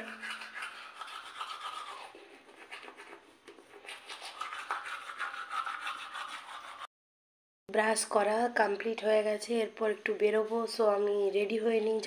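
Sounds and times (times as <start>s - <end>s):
toothbrush scrubbing teeth: 0.0s - 6.9s.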